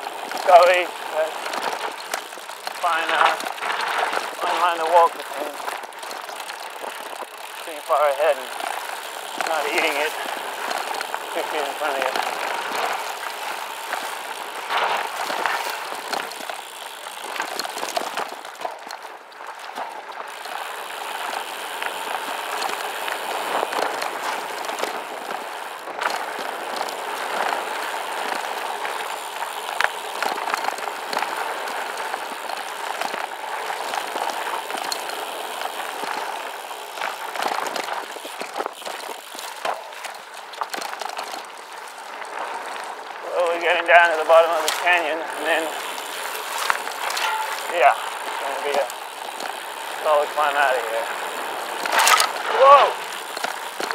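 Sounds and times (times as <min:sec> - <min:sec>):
bike clicks and rattles: 0:00.0 - 0:53.9
tyres crunching over gravel: 0:00.0 - 0:53.9.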